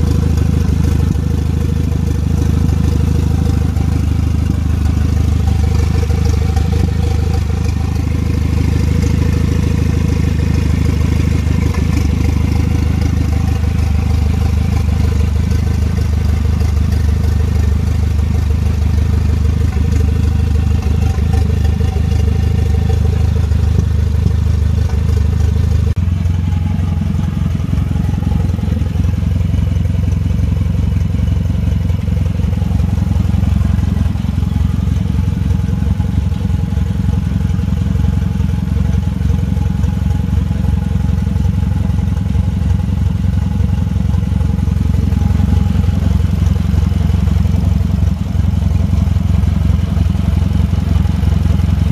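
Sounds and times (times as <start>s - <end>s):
car engine idling: 0.0s - 51.9s.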